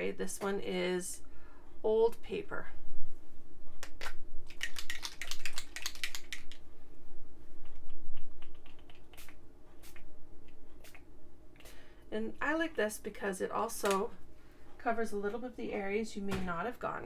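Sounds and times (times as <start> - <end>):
spray bottle spraying: 9.0 - 10.1.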